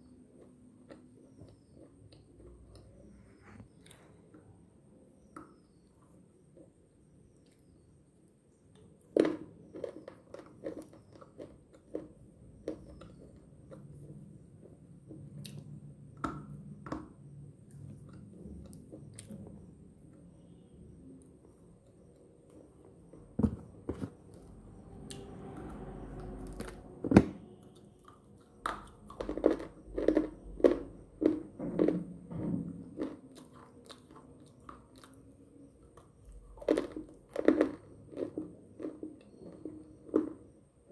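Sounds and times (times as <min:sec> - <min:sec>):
crunchy chewing: 0:00.0 - 0:04.2, 0:08.7 - 0:15.7, 0:23.9 - 0:26.9, 0:27.6 - 0:40.8.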